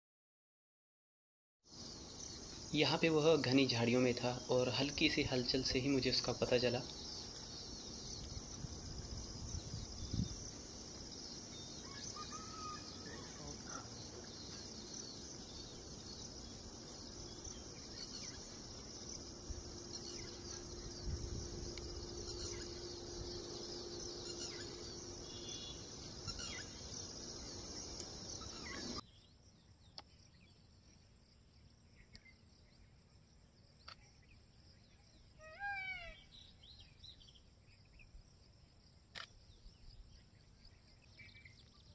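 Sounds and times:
high-pitched insect chorus: 0:01.7 - 0:29.0
sweeping bird chirps: 0:01.8 - 0:29.2
short bird calls: 0:11.7 - 0:14.8, 0:22.0 - 0:26.9.

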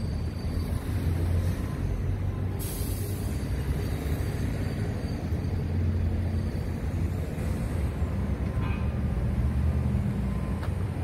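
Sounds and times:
hiss: 0:02.6 - 0:03.6.

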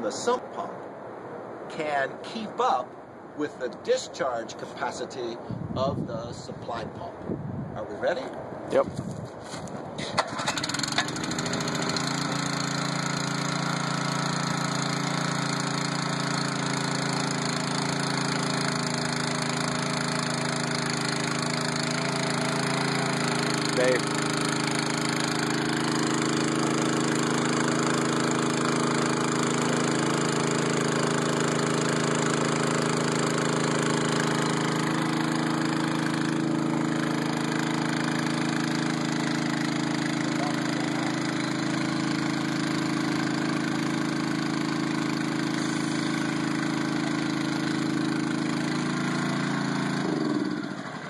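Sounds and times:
water pump engine running: 0:10.2 - 0:51.0.

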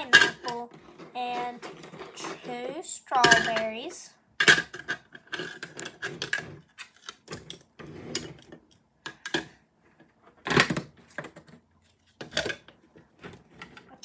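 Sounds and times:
toy pieces clattering in plastic jar: 0:00.0 - 0:08.2.

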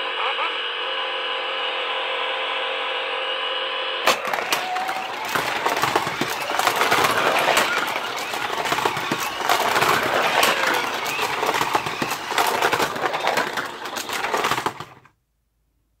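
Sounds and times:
toy cars rattling on plastic track: 0:04.1 - 0:15.1.

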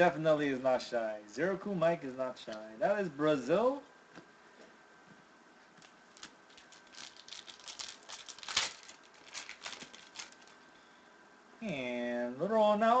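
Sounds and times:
foil wrapper crinkling: 0:05.8 - 0:10.6.

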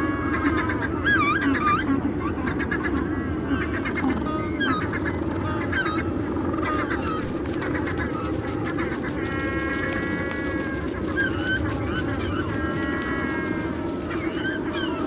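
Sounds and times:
birds honking and calling: 0:05.6 - 0:15.0.

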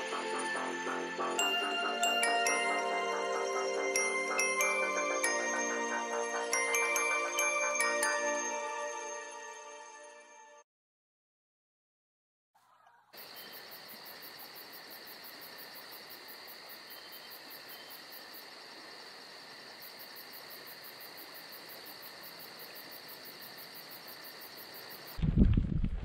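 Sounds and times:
crickets chirping: 0:00.0 - 0:09.0, 0:13.2 - 0:25.2.

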